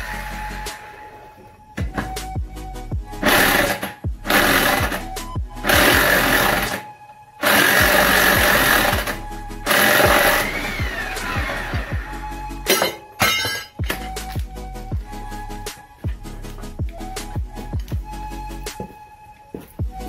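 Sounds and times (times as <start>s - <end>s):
impact wrench hammering: 5.6s - 6.8s, 7.4s - 10.8s, 12.7s - 14.1s.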